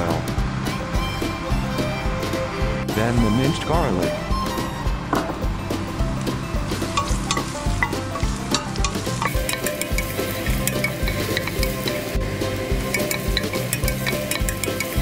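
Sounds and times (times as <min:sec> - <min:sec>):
background music with beat: 0:00.0 - 0:15.0
garlic sizzling in hot oil: 0:06.6 - 0:15.0
wooden spoon stirring in pot: 0:06.8 - 0:15.0.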